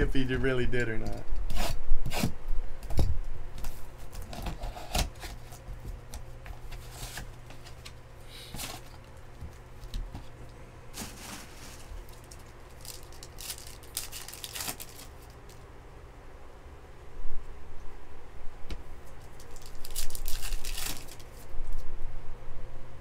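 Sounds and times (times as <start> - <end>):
hands handling cardboard box and cards: 2.9 - 10.4.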